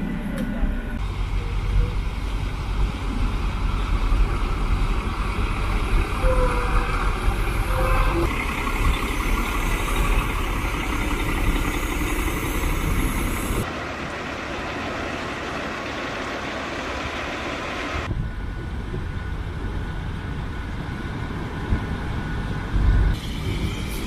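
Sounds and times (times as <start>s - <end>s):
diesel truck engine running: 0.0s - 20.4s.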